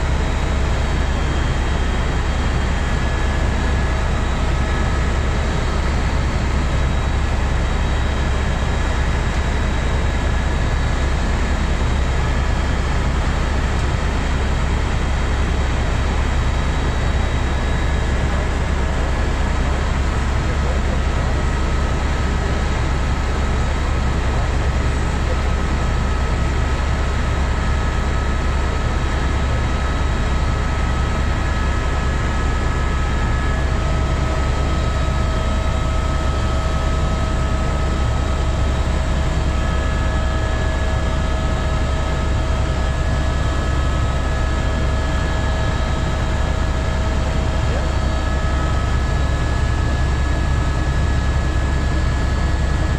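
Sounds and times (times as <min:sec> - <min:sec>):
helicopter engine and rotor drone: 0:00.0 - 0:52.9.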